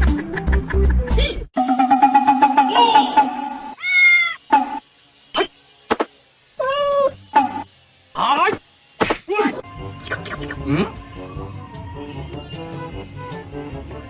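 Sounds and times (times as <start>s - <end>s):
cat meowing: 3.8s - 4.4s.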